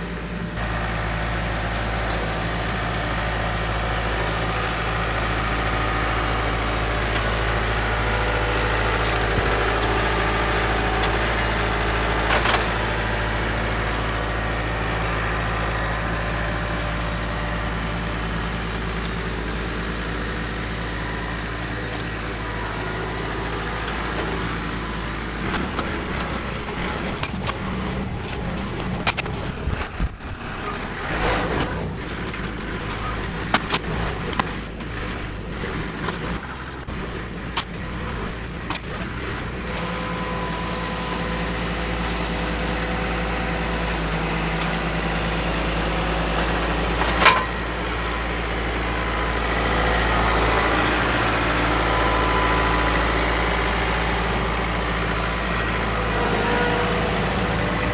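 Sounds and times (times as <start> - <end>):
tractor diesel engine: 0.0 - 57.9
branches snapping and crackling: 0.2 - 57.9.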